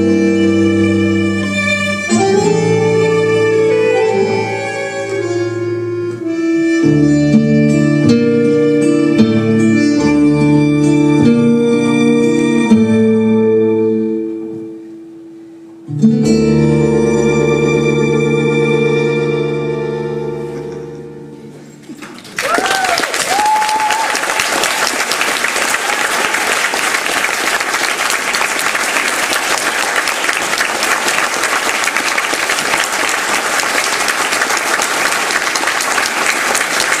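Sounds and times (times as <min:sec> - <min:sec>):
tango music chord: 0:00.0 - 0:21.9
audience applause: 0:21.8 - 0:37.0.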